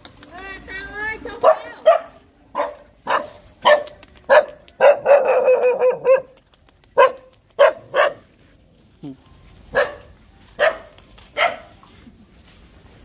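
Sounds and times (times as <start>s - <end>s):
dog barking: 1.4s - 6.4s, 7.0s - 8.2s, 9.7s - 11.7s.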